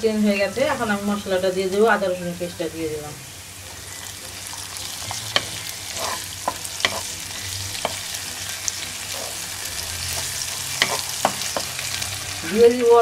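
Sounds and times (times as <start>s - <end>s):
onions sizzling in hot oil: 0.0s - 13.0s
wooden spatula scraping a pan: 4.8s - 12.6s.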